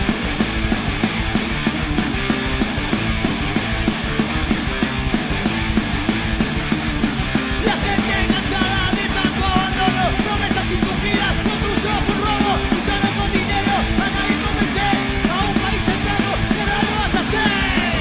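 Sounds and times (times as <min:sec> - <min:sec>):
distorted electric guitars: 0:00.0 - 0:18.0
drums: 0:00.0 - 0:18.0
shouted vocals: 0:07.5 - 0:18.0.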